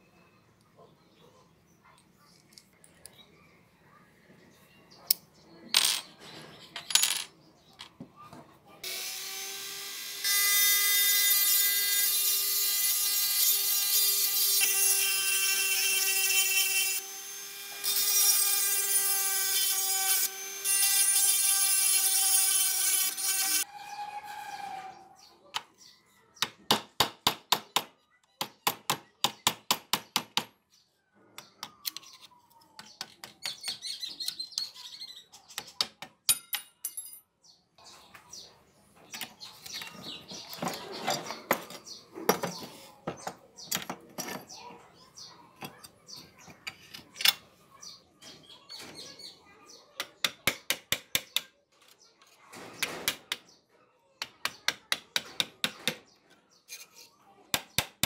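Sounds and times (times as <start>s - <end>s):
rough scraping: 23.6s - 25.3s, 39.9s - 42.9s.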